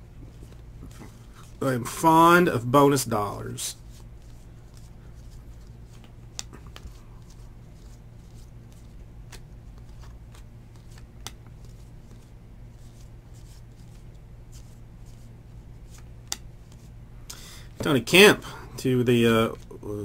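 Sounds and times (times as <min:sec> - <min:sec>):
cards flipped by hand: 0:03.9 - 0:16.9.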